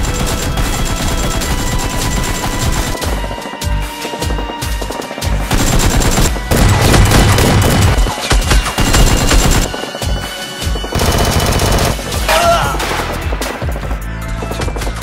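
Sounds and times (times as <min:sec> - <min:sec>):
gunfire bursts: 0:00.0 - 0:13.8
background music: 0:00.0 - 0:15.0.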